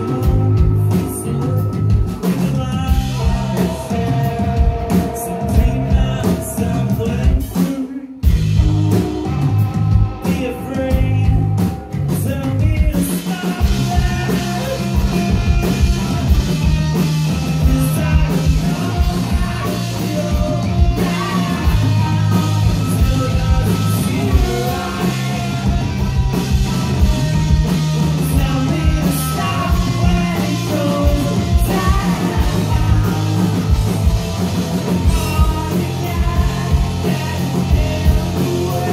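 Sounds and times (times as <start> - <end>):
person singing: 0.0 - 9.6, 10.2 - 15.9, 17.5 - 26.0, 28.1 - 34.0, 34.9 - 38.9
drum kit: 0.0 - 38.9
electric guitars: 0.0 - 38.9.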